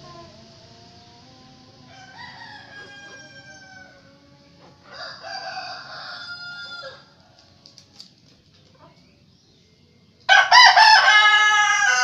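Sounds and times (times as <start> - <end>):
roosters crowing: 0.0 - 7.9, 10.3 - 12.0.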